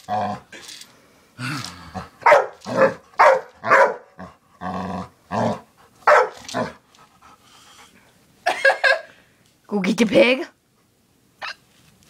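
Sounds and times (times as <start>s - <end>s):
dog barking: 2.2s - 4.2s, 6.0s - 6.4s.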